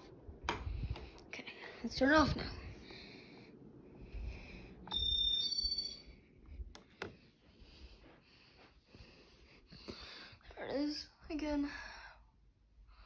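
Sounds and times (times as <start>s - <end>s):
ceiling fan coasting rumble: 0.0s - 13.0s
two-part electronic beep: 4.9s - 6.1s.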